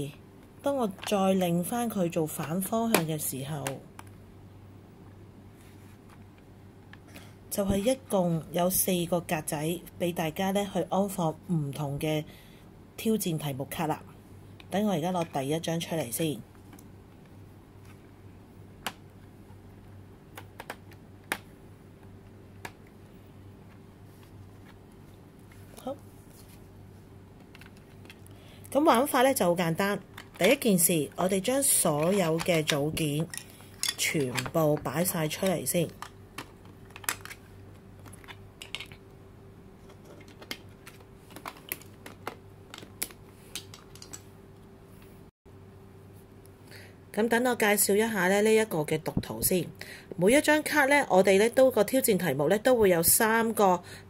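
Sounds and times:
plastic blocks clicking and tapping: 32.0 - 39.0, 39.9 - 44.3.

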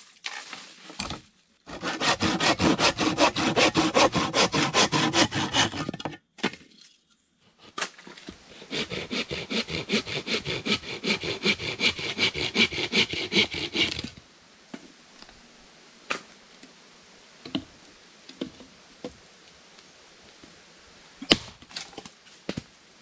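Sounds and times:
hand saw cutting wood: 1.7 - 6.0, 8.5 - 14.1.

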